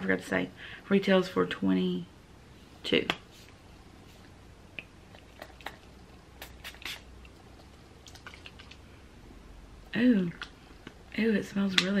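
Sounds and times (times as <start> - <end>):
pump spray bottle spritzes: 6.4 - 7.1.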